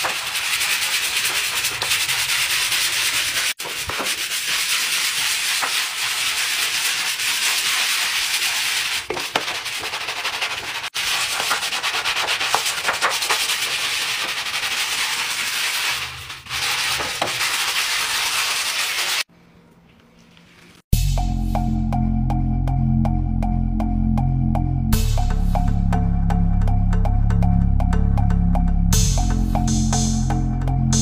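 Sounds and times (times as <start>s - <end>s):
scrub brush scrubbing wet floor: 0.0s - 19.3s.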